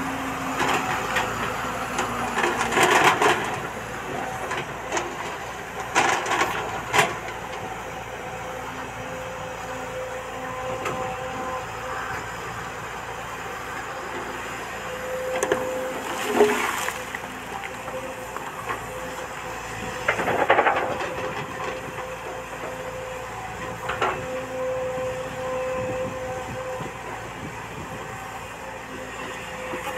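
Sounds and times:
excavator engine whining: 0.0s - 29.9s
bucket scraping soil and stones: 15.5s - 17.4s.

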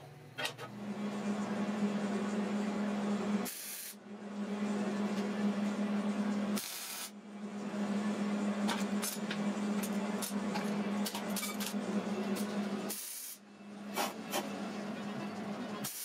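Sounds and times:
welder arc sizzling and crackling: 6.6s - 7.1s.

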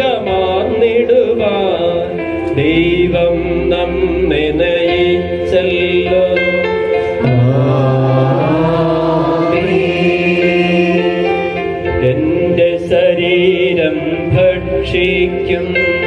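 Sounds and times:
people singing a hymn: 7.0s - 12.8s.

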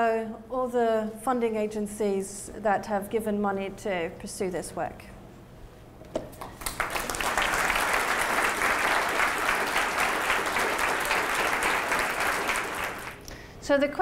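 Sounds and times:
audience applauding: 6.4s - 13.2s.

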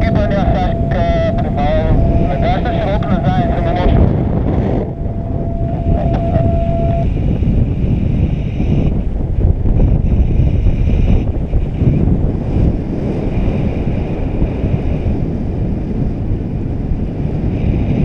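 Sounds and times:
faint high tone: 0.0s - 7.1s
wind buffeting microphone: 0.0s - 18.0s.

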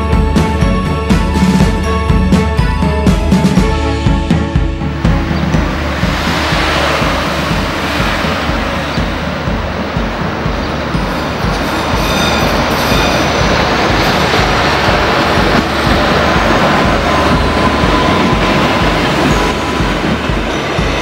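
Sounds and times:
train rolling past: 0.0s - 21.0s
wheel squeal: 10.4s - 21.0s.

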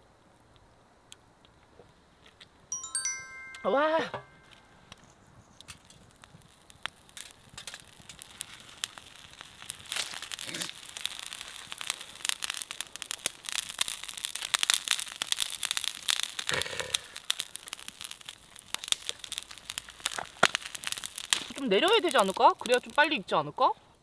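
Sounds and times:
wood fire crackling: 4.8s - 24.0s
plastic packaging crinkling: 5.8s - 23.1s.

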